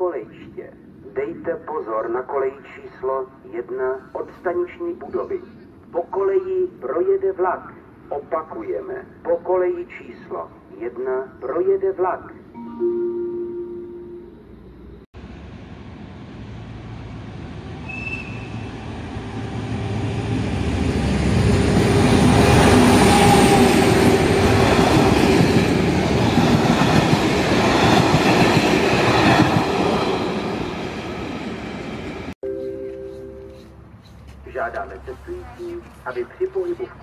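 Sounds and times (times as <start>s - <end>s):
freight train rumble: 14.4s - 32.4s.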